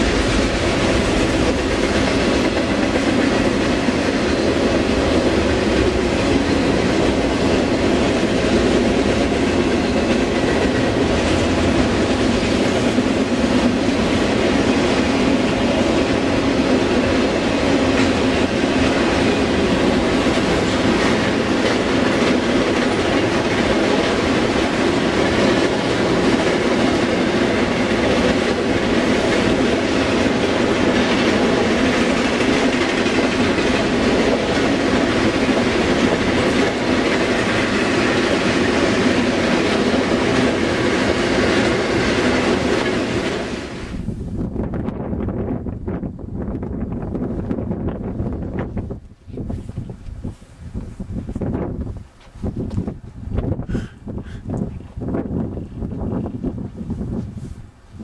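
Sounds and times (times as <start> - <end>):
freight train wheels rumbling on rail: 0.0 - 58.0.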